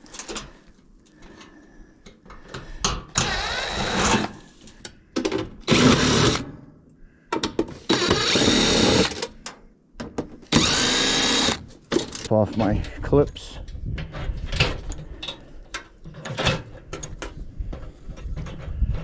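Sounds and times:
cordless drill motor whine: 3.2 - 4.4, 5.7 - 6.4, 7.9 - 9.2, 10.5 - 11.6.

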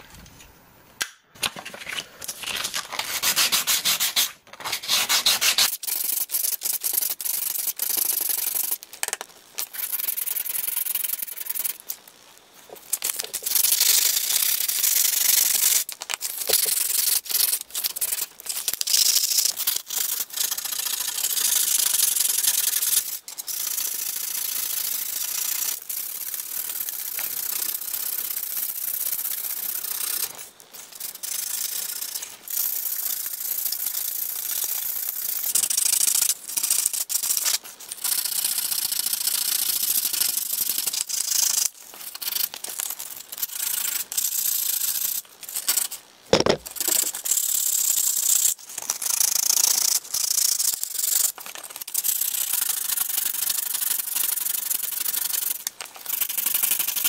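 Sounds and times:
sandpaper rubbing sheet steel: 2.4 - 8.8, 12.8 - 23.1.

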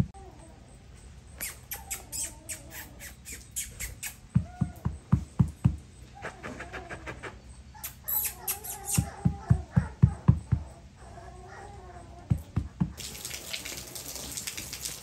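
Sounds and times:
puppy whining: 0.0 - 13.0.

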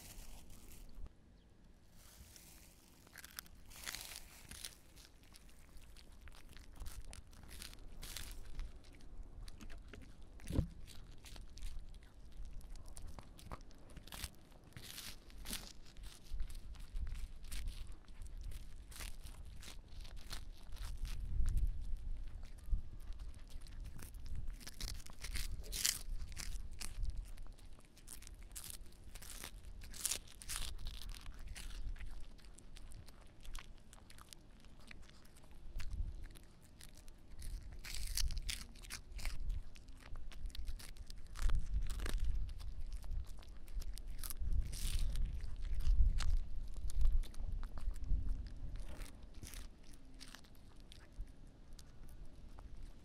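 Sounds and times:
dog crunching a treat: 2.1 - 53.0
wind rumble on microphone: 15.5 - 27.6, 39.2 - 49.7.

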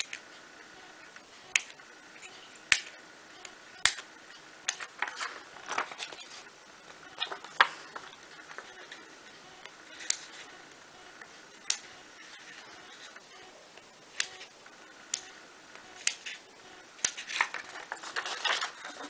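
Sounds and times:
scissors snipping parchment: 16.0 - 16.4.

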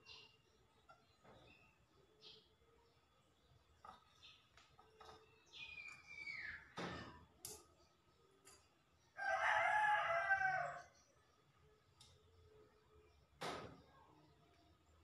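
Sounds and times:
rooster crowing: 9.2 - 10.9.

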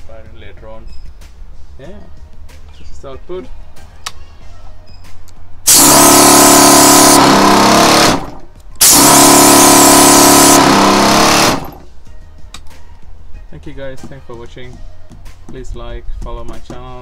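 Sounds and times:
buzzing tone: 5.7 - 11.9
compressed air blasting: 5.7 - 11.9.

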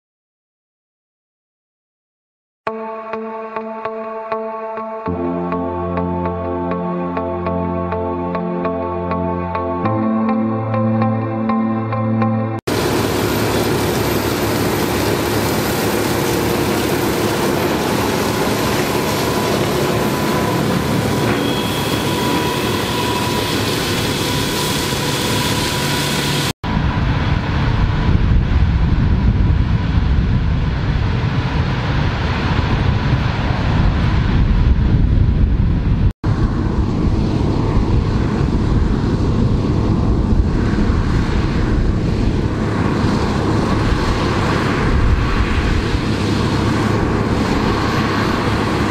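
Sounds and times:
mulchers shredding crop: 12.7 - 24.1
tractor running under load: 12.7 - 26.5
thin machine whine: 12.7 - 27.6.

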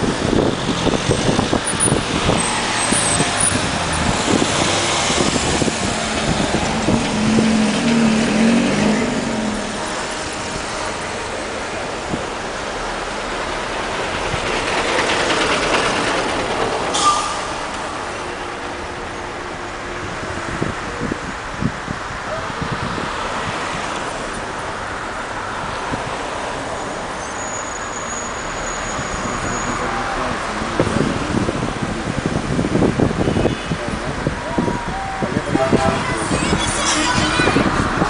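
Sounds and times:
wind buffeting microphone: 0.0 - 8.2, 20.0 - 24.0, 30.2 - 38.0
road and engine noise: 0.0 - 38.0
vehicles passing: 0.0 - 38.0.

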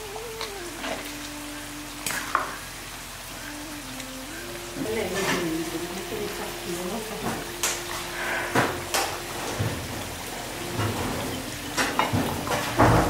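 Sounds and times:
wavering tone: 0.0 - 13.0.

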